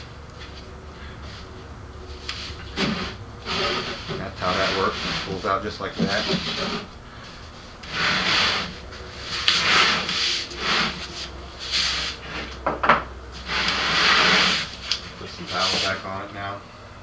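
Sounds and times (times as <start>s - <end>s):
wooden box scraping across workbench: 2.4s - 12.6s, 13.4s - 16.1s.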